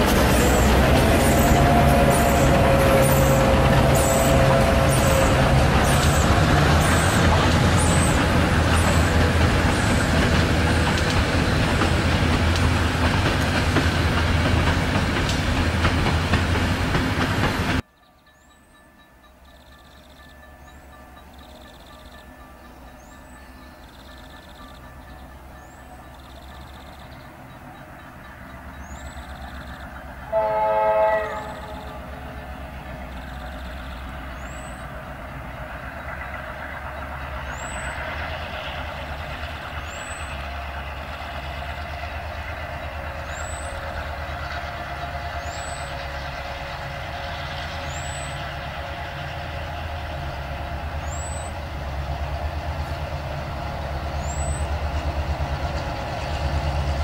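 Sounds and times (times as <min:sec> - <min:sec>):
locomotive horn chord: 0:00.0 - 0:07.8, 0:30.2 - 0:32.4
locomotive engine rumble: 0:00.0 - 0:18.2, 0:18.8 - 0:57.0.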